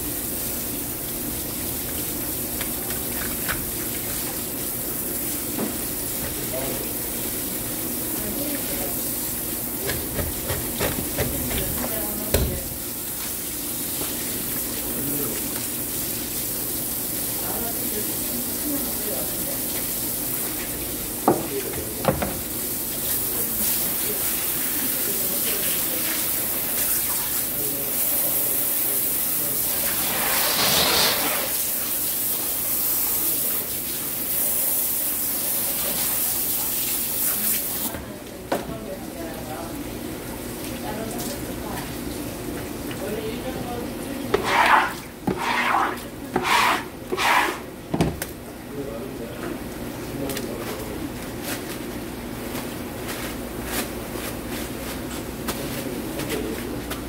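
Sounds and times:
water running and spraying: 0:00.0 - 0:37.9, 0:44.1 - 0:47.7
knocks on plastic cutting board: 0:21.3 - 0:22.4, 0:47.9 - 0:48.2
running water hiss: 0:23.4 - 0:37.9.

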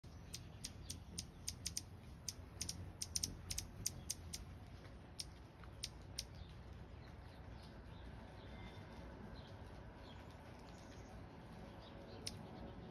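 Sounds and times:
hummingbird chip notes: 0:00.0 - 0:04.5.

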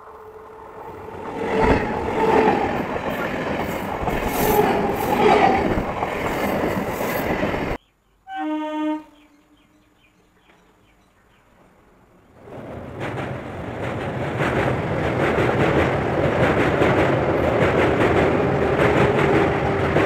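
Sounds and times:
train wheels rushing on rail: 0:00.0 - 0:07.8, 0:11.6 - 0:20.0
train horn blast: 0:08.3 - 0:09.8.

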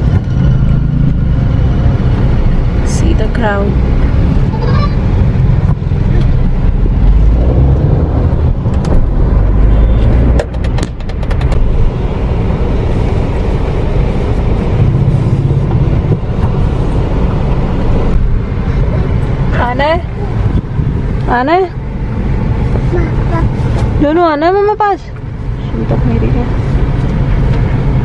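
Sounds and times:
car engine and traffic rumble: 0:00.0 - 0:28.0.

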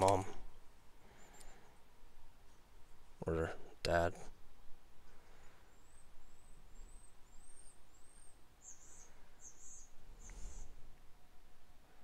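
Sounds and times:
bird raspy calls: 0:05.4 - 0:10.8.

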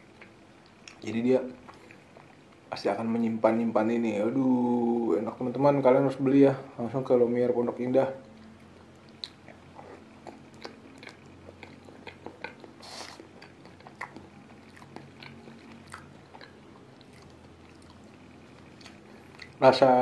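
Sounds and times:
person chewing: 0:00.0 - 0:01.0, 0:01.6 - 0:02.5, 0:08.2 - 0:19.6
breathy hiss: 0:12.8 - 0:13.3.

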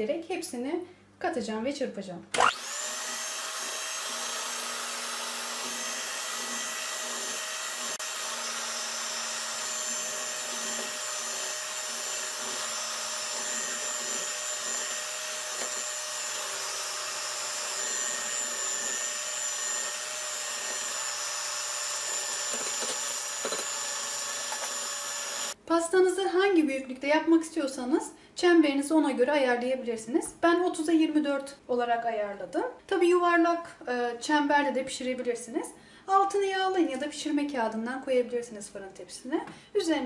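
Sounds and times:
electric hand mixer whine: 0:02.4 - 0:25.6.

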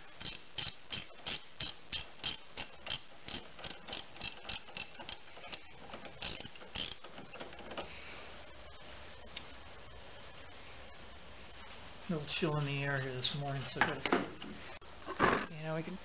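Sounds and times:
socket ratchet clicking: 0:00.2 - 0:07.8.

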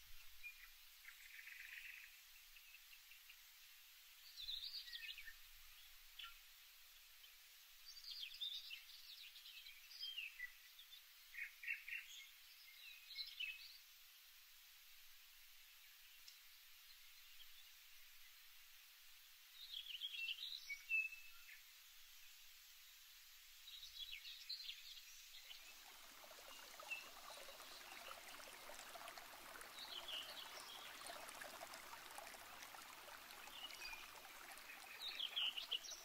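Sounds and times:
faint birdsong chirping: 0:19.4 - 0:36.0.

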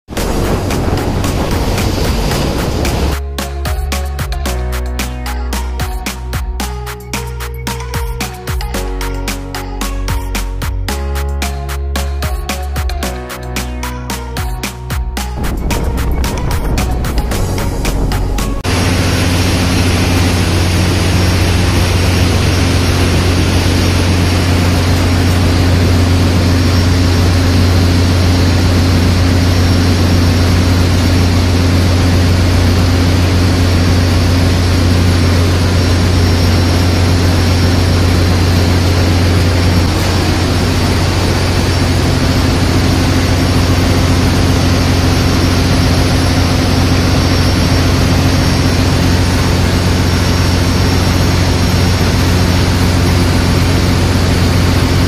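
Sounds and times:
ship engine room machinery drone: 0:00.1 - 0:12.3, 0:15.3 - 0:55.0.

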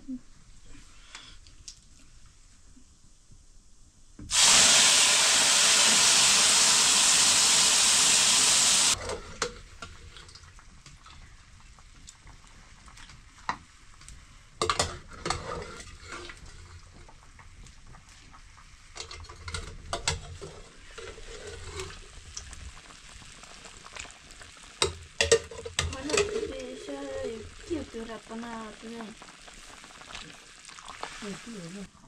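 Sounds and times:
food sizzling in a pan: 0:04.3 - 0:32.0
utensil scraping and knocking pan: 0:25.2 - 0:26.7.

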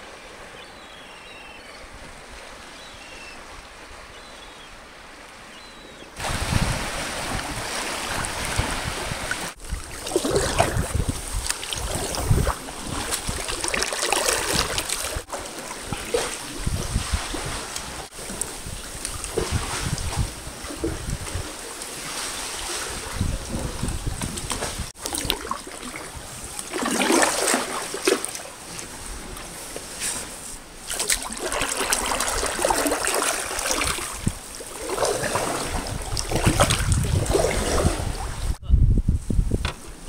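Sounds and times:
water splashes: 0:01.9 - 0:38.6
wind rumble on microphone: 0:06.2 - 0:13.6, 0:14.4 - 0:25.4, 0:33.8 - 0:40.0
kayak paddle pulling through water: 0:06.2 - 0:38.6.

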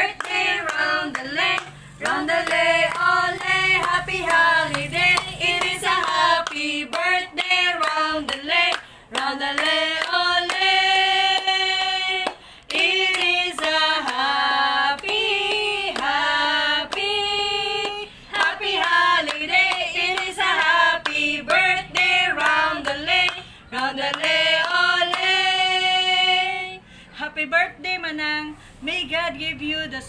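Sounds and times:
hands clapping: 0:00.0 - 0:10.7, 0:11.3 - 0:14.3, 0:15.0 - 0:16.2, 0:17.8 - 0:25.4
women singing together: 0:00.0 - 0:30.0.

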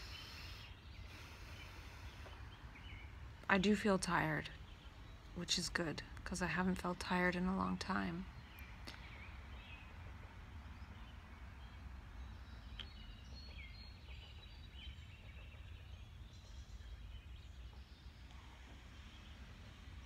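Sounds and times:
faint bird calls: 0:00.0 - 0:03.2.

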